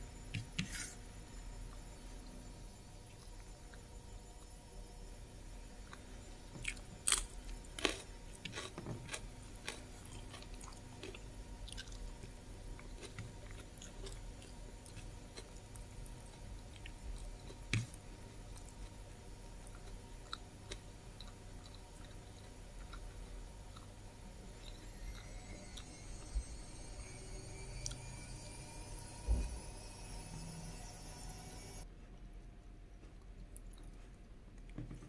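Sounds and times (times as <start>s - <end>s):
person chewing food: 5.8s - 25.9s, 33.0s - 34.8s.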